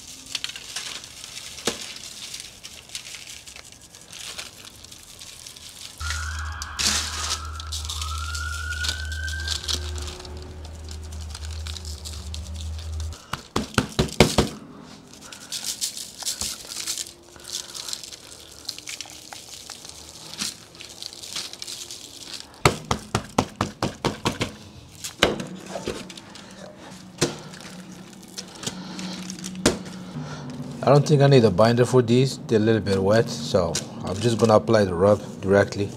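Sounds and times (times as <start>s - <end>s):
shaker jar rattling: 0.0s - 14.3s, 15.0s - 22.6s
clicks of hands and foil: 0.0s - 30.1s
low hum: 6.0s - 13.3s, 24.7s - 34.0s.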